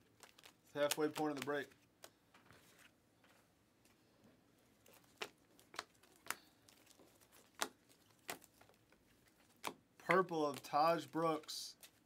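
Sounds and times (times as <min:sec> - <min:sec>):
trading cards being flicked: 0:00.2 - 0:02.2
sharp card snaps: 0:00.4 - 0:02.2.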